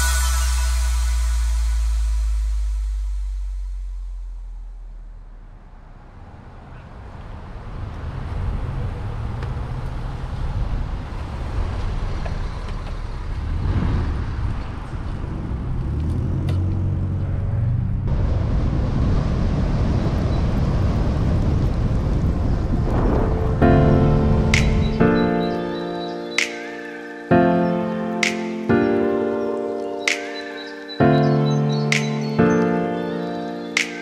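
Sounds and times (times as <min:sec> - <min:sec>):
low rumble: 0:00.0 - 0:07.1, 0:13.4 - 0:25.6
road and traffic noise: 0:01.3 - 0:34.0.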